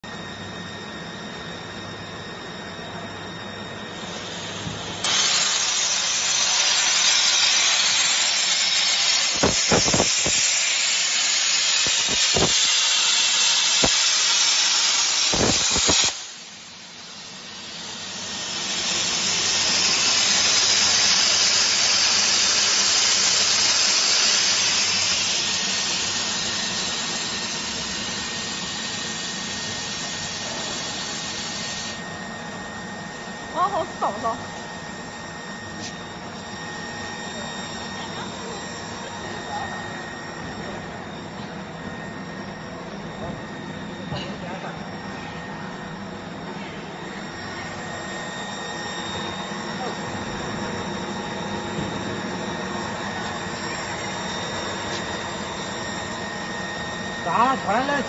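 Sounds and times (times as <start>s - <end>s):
low machine hum with whine: 0.0s - 58.0s
plasma torch cutting hiss: 3.9s - 32.0s, 57.2s - 58.0s.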